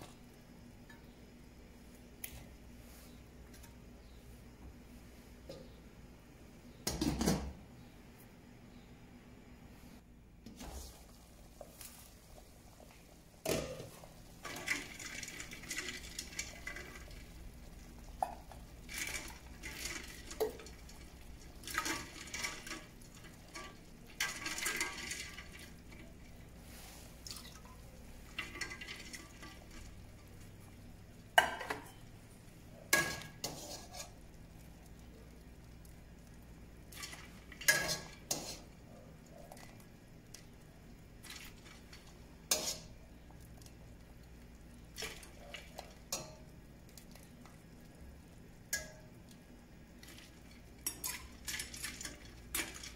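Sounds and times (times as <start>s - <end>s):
water sloshing and bubbling: 32.6s - 52.9s.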